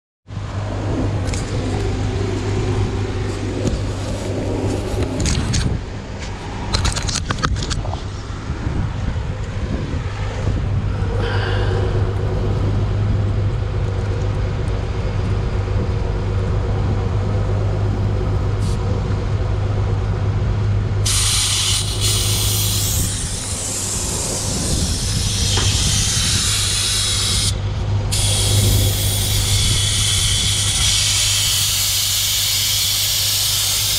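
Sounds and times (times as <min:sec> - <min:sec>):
steady low hum: 0:00.3 - 0:33.9
air hissing from tyre valve: 0:21.0 - 0:33.9.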